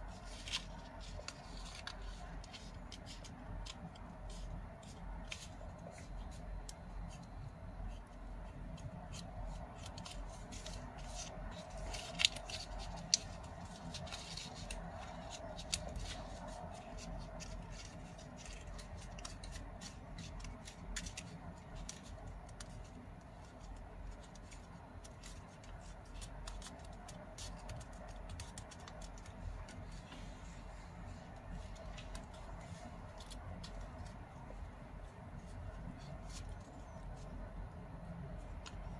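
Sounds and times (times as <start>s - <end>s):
paper folding and crackling: 0.0s - 38.9s.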